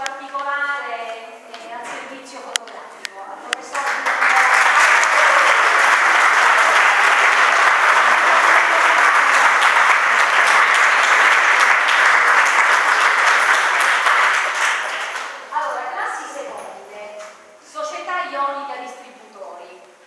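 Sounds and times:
audience applauding: 0:03.8 - 0:15.4.

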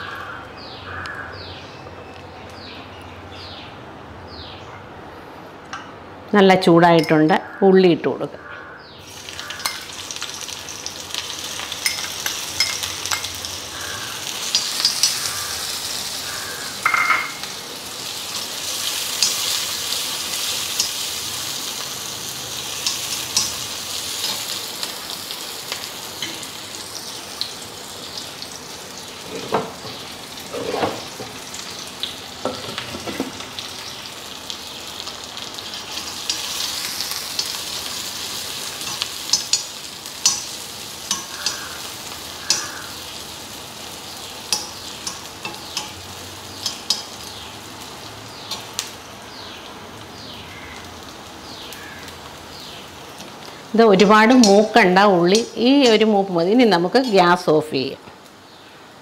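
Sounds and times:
shallots sizzling in hot fat: 0:09.0 - 0:59.0
spoon scraping metal pan: 0:30.5 - 0:31.2.

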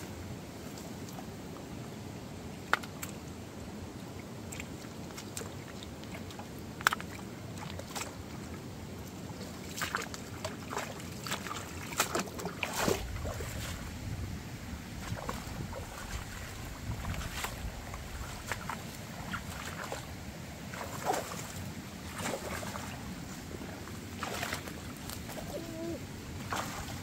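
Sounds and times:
stream water running over stones: 0:00.0 - 0:27.0
low wind rumble: 0:12.8 - 0:27.0.

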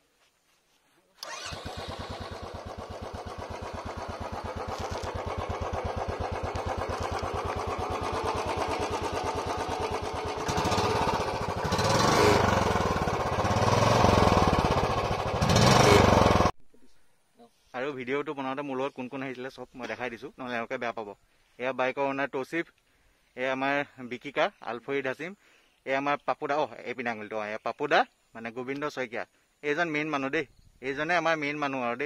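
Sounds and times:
motorcycle engine idling: 0:01.2 - 0:16.5
motorcycle engine revving: 0:01.2 - 0:16.5.

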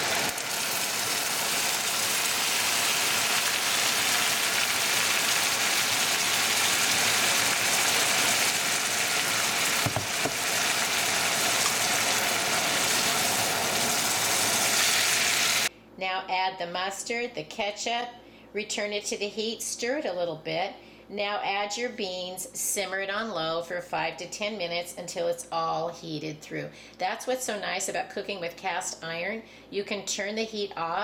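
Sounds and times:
liquid sizzling in a skillet: 0:00.0 - 0:15.7.

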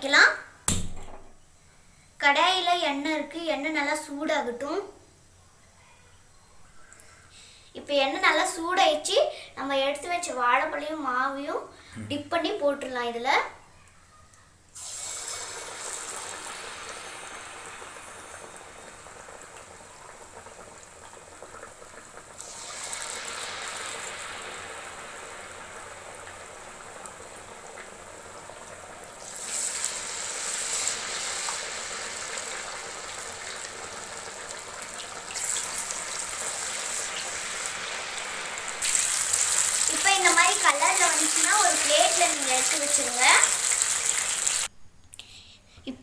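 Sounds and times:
banana slices deep-frying in oil: 0:14.8 - 0:44.7.

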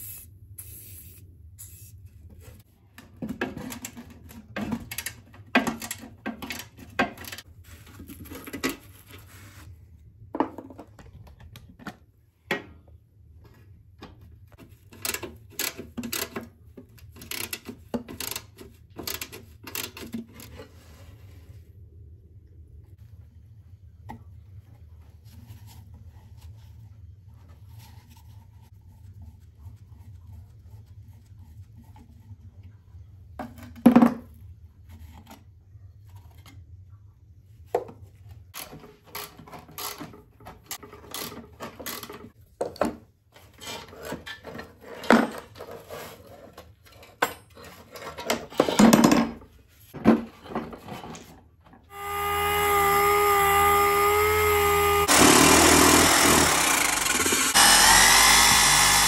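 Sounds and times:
rotary tool grinding: 0:51.9 - 0:59.0.

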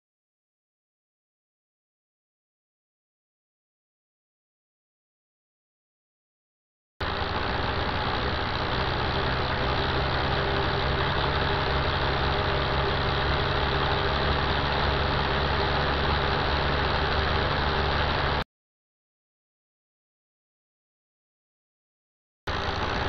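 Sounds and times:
motor saw running: 0:07.0 - 0:18.4, 0:22.5 - 0:23.0.

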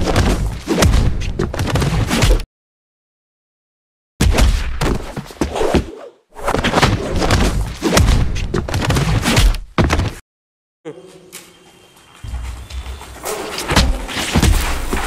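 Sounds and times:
punch and kick impacts: 0:00.0 - 0:02.5, 0:04.2 - 0:05.9, 0:06.5 - 0:10.2, 0:13.7 - 0:15.0.

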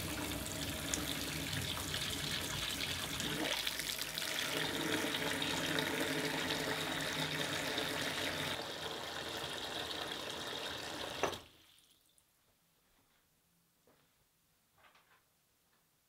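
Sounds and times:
tap water running into sink: 0:00.0 - 0:11.6.

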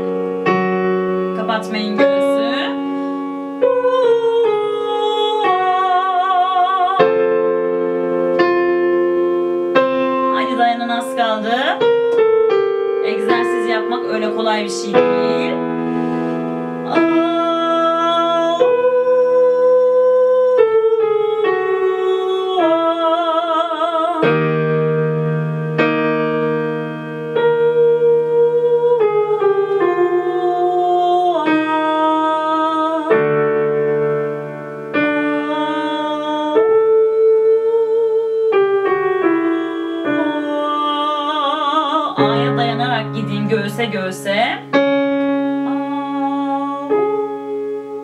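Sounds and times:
electric keyboard chords: 0:00.0 - 0:48.0
woman singing vocal exercise: 0:01.4 - 0:02.9, 0:03.6 - 0:07.4, 0:13.0 - 0:15.7, 0:16.8 - 0:24.4, 0:27.5 - 0:33.3, 0:35.2 - 0:44.8, 0:45.6 - 0:47.7.

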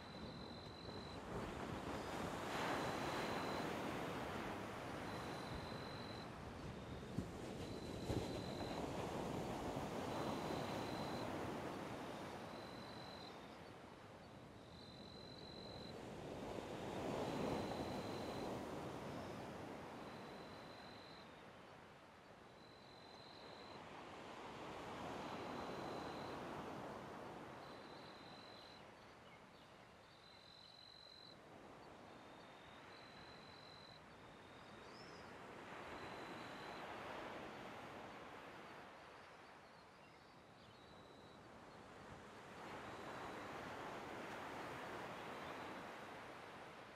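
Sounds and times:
faint high steady tone: 0:04.9 - 0:06.4, 0:10.0 - 0:13.7, 0:17.4 - 0:21.4, 0:30.0 - 0:38.8.

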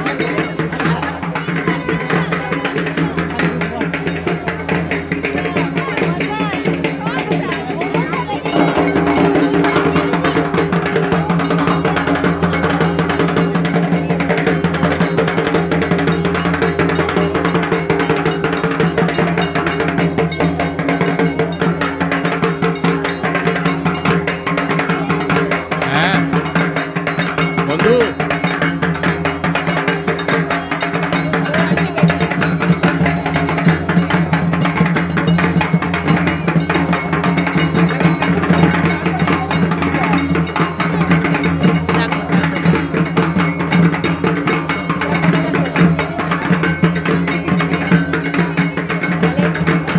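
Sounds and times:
barrel drum beaten with sticks: 0:00.0 - 0:49.9
voices: 0:00.0 - 0:49.9.

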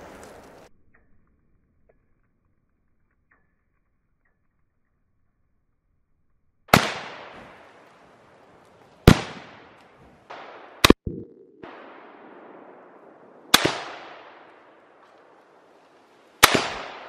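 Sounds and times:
rifle shots echoing: 0:09.1 - 0:15.0, 0:16.4 - 0:17.0.

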